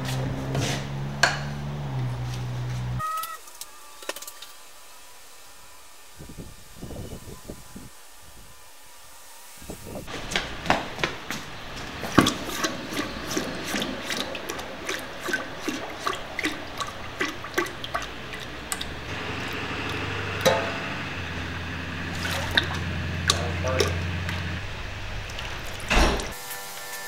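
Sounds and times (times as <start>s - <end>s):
hot steel quenching hiss and crackle: 3.5s - 10.1s
steady low hum: 4.6s - 26.4s.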